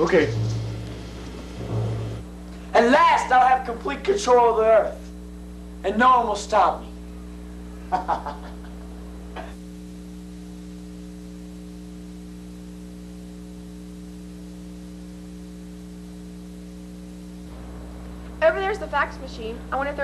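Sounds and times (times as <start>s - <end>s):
man's voice fragments: 0.0s - 0.8s, 2.7s - 5.0s
electrical mains hum: 0.0s - 20.0s.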